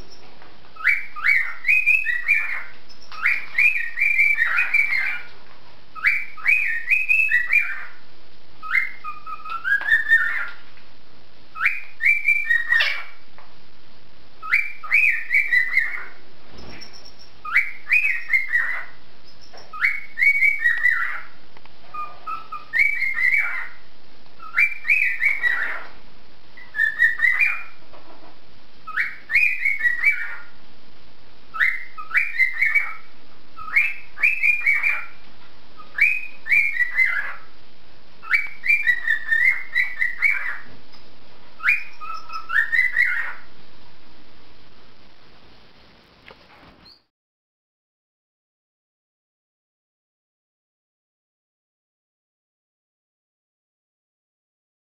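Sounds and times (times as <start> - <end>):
cockatiel whistling: 0.8 - 5.3, 6.0 - 8.0, 8.6 - 10.6, 11.6 - 13.2, 14.4 - 23.8, 24.4 - 25.9, 26.6 - 27.8, 28.9 - 30.5, 31.5 - 35.2, 35.8 - 37.5, 38.2 - 40.7, 41.6 - 43.5.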